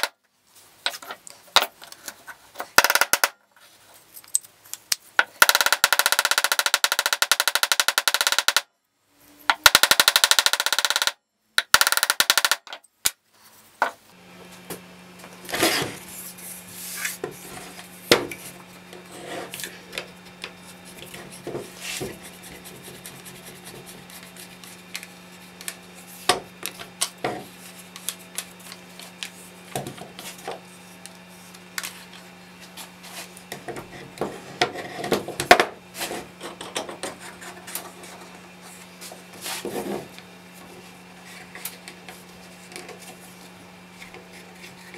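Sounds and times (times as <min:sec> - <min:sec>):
plywood parts knocking and clicking: 0:05.2 - 0:08.6, 0:09.5 - 0:12.8
steady low hum: 0:13.0 - 0:44.9.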